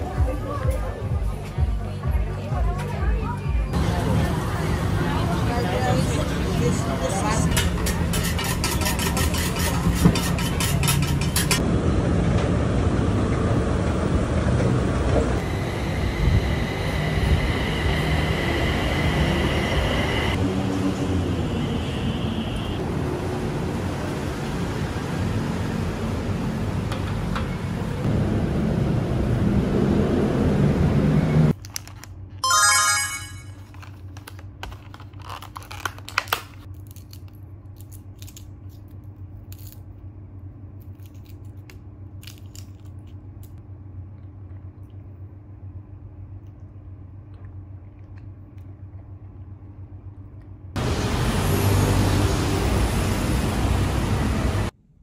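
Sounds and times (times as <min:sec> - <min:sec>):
loud noisy ambience: 0:00.0 - 0:31.5, 0:50.8 - 0:54.8
bright ringing sound: 0:32.4 - 0:33.6.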